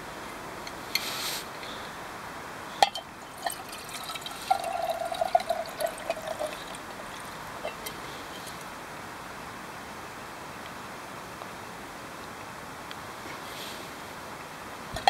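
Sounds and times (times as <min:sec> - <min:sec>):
steel cup clink: 0:02.8 - 0:08.6
water gurgling into canteen: 0:03.1 - 0:08.6.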